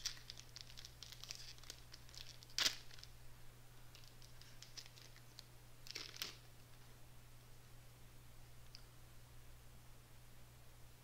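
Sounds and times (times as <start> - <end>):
foil wrapper crinkling and tearing: 0.0 - 3.1, 4.0 - 6.4.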